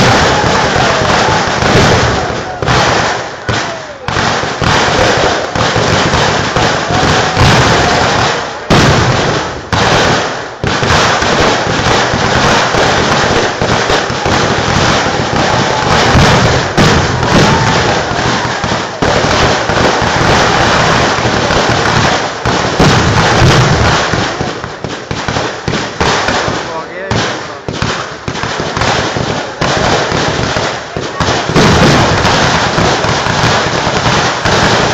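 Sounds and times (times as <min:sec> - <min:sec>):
firecrackers bursting and crackling: 0:00.0 - 0:34.9.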